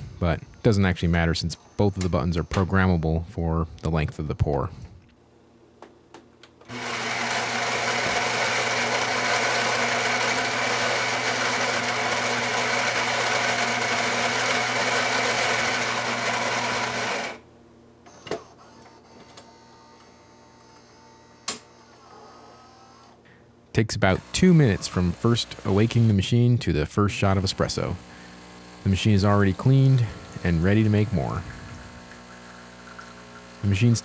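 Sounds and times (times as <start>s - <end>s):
coffee grinder motor whirring: 6.7s - 17.4s, 24.1s - 26.4s, 27.3s - 34.0s.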